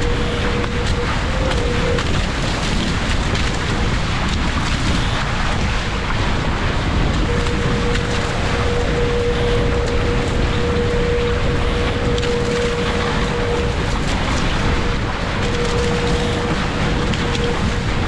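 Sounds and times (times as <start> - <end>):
thin steady hum-like tone: 0.0 - 2.4, 7.2 - 18.0
water rushing along hulls: 0.0 - 18.0
wind buffeting microphone: 0.0 - 18.0.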